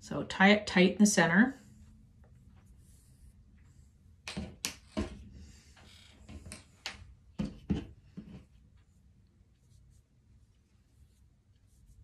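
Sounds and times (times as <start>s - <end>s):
knocks and rustles of tying cord: 3.5s - 9.8s.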